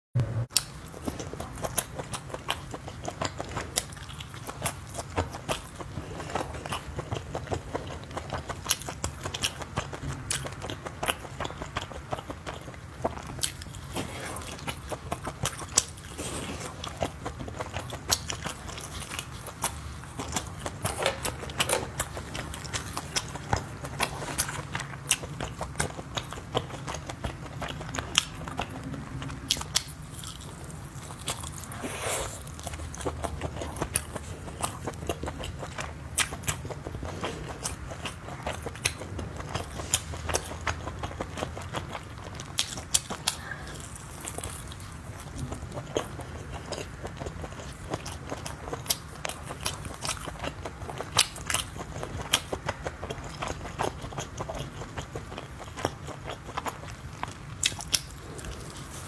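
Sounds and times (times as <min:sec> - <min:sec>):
crunchy biting and chewing: 0:00.5 - 0:59.0.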